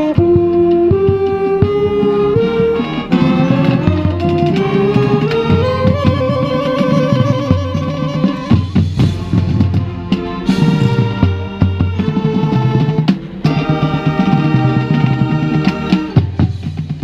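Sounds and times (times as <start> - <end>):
marching band playing: 0.0 - 17.0
sharp drum hits: 8.6 - 17.0.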